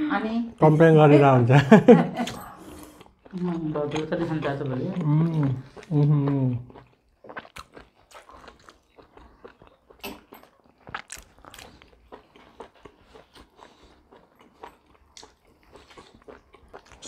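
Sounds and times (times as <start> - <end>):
people chewing chicken: 1.7 - 17.0.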